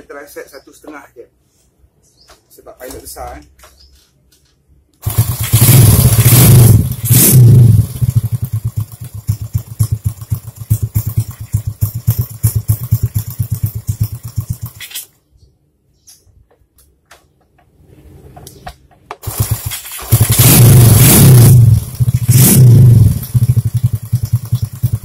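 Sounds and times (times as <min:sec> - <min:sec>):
motorcycle engine revving and idling: 0:05.0 - 0:15.0, 0:19.2 - 0:25.0.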